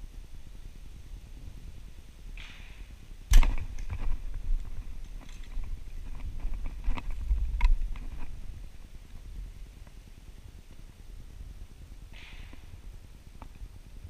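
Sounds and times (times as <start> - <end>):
clicks and light rattles: 3.4 - 8.4.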